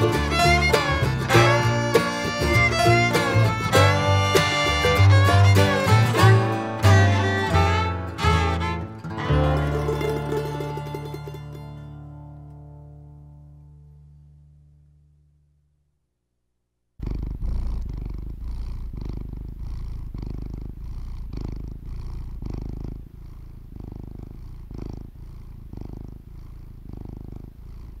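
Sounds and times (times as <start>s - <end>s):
cat purring: 0.0s - 6.4s, 17.0s - 28.0s.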